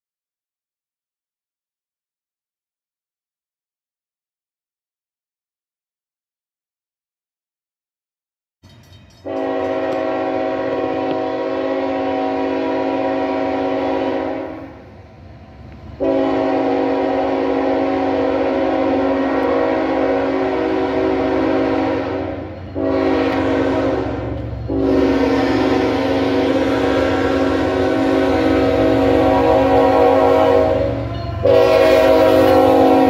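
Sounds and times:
freight train rumble: 0:08.6 - 0:33.0
locomotive air horn blasts: 0:09.2 - 0:14.8, 0:16.0 - 0:33.0.

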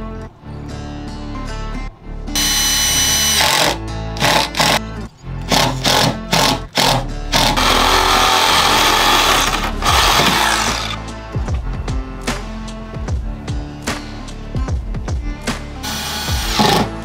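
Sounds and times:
background music: 0:00.0 - 0:17.0
cordless drill driving screws: 0:02.4 - 0:04.8, 0:05.5 - 0:11.0, 0:15.8 - 0:17.0
reciprocating saw cutting hose: 0:02.4 - 0:04.8, 0:05.5 - 0:11.1, 0:15.8 - 0:17.0.

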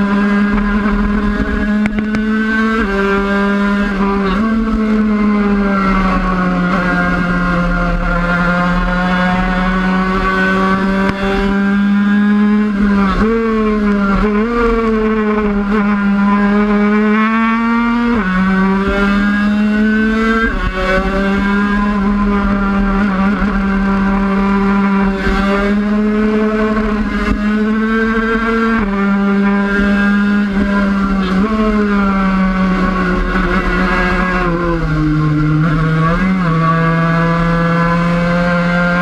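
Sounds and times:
motorbike engine at high revs: 0:00.0 - 0:39.0.

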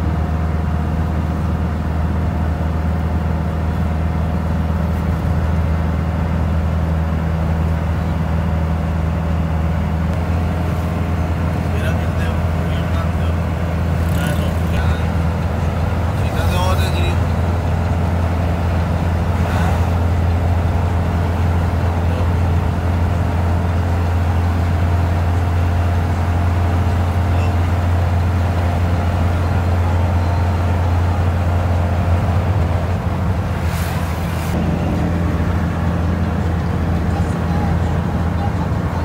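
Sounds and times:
car engine drone and road noise: 0:00.0 - 0:39.0
brief rush of noise: 0:33.6 - 0:34.6.

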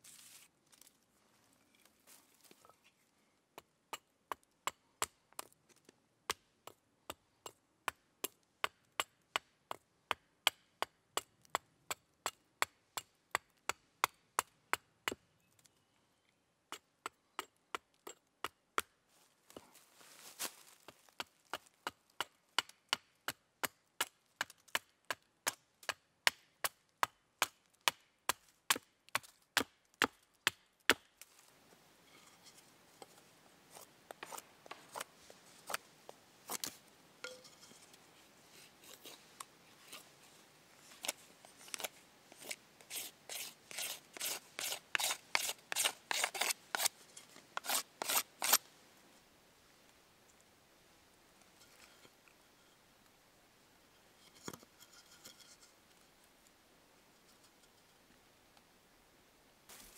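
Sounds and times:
hatchet chopping wood: 0:21.1 - 0:31.1, 0:41.8 - 0:46.9
knife shaving wood: 0:33.7 - 0:35.8, 0:40.9 - 0:47.0, 0:47.6 - 0:48.6.

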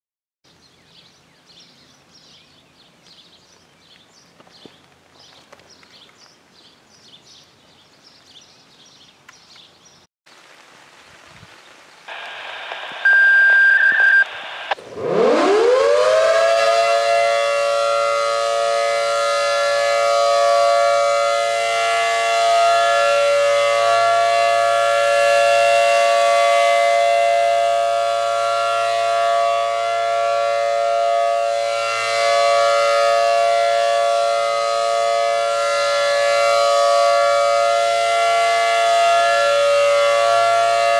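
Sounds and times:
short steady beep: 0:13.0 - 0:14.4
rotating siren winding up: 0:13.0 - 0:18.8.

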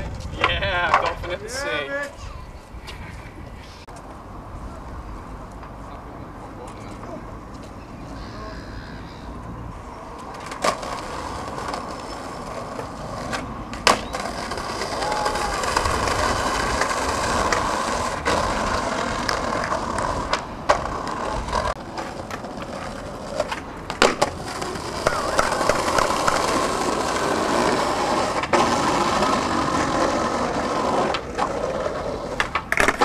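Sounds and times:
skateboard wheels rolling on concrete: 0:00.0 - 0:33.0
skateboard knocks: 0:00.3 - 0:01.4, 0:10.2 - 0:27.1, 0:28.4 - 0:33.0.

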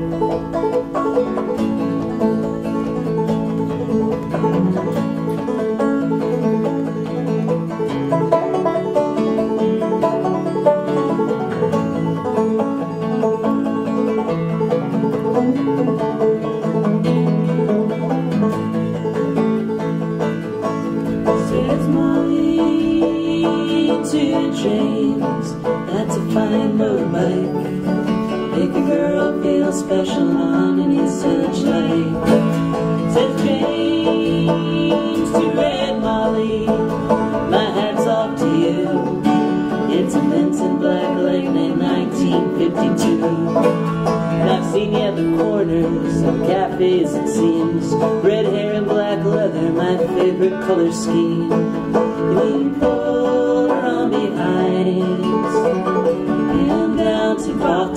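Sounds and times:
picked banjo: 0:00.0 - 0:57.9
strummed acoustic guitar: 0:00.0 - 0:57.9
people singing: 0:21.2 - 0:57.9.

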